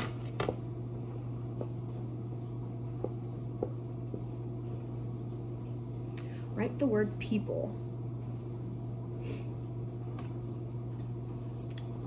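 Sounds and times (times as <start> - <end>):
steady low hum: 0.0 - 12.0
marker tapping and stroking on board: 1.5 - 5.0.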